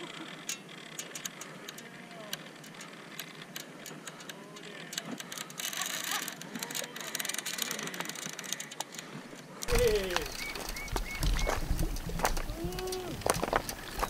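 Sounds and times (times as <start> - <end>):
fishing reel clicks and rubs: 0.0 - 11.6.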